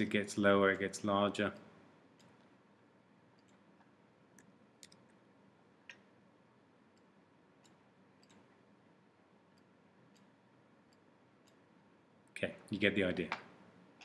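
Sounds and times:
computer mouse clicks: 1.6 - 2.5, 3.3 - 5.2, 6.9 - 8.5, 9.5 - 11.6.

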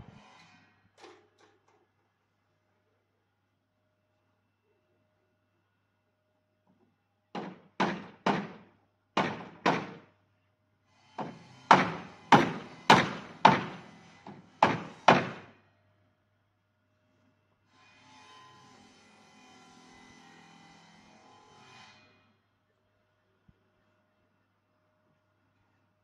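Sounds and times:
hammer striking wood: 7.4 - 10.1, 11.2 - 15.5.

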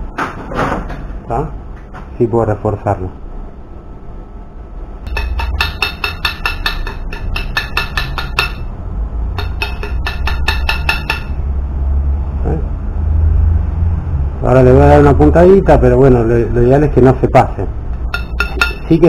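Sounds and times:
steady low hum: 0.0 - 19.0
light hammer strikes on steel: 5.1 - 11.5, 18.0 - 19.0.

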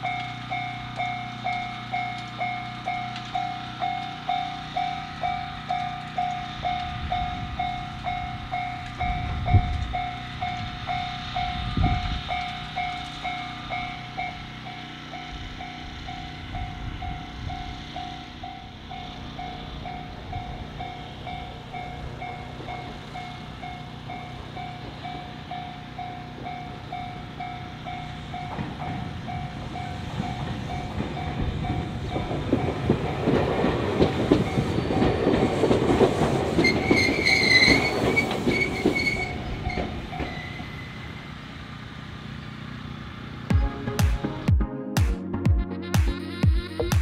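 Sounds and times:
level crossing alarm ringing: 0.0 - 33.4
train rumble and wheel clatter: 0.0 - 44.5.

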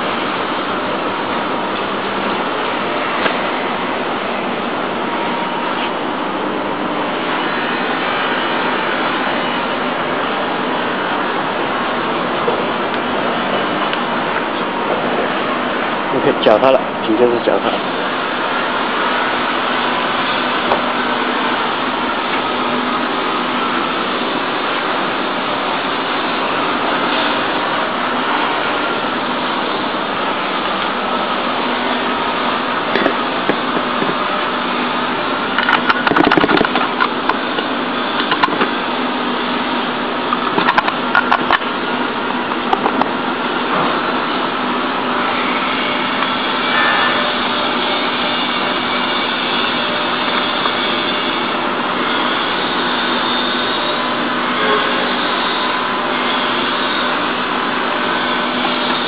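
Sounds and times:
steady machine hum: 0.0 - 59.0.

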